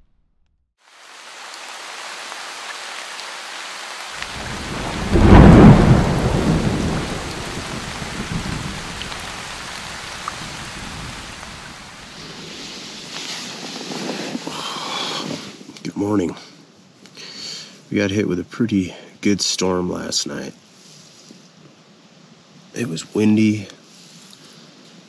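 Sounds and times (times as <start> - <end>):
storm hiss: 0.9 - 15.7
deep thunder rumble: 4.2 - 11.9.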